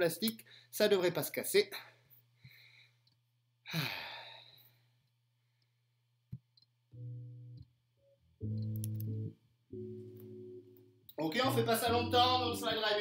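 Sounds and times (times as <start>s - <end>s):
breathy sigh: 3.7s - 4.8s
guitar chords: 6.9s - 13.0s.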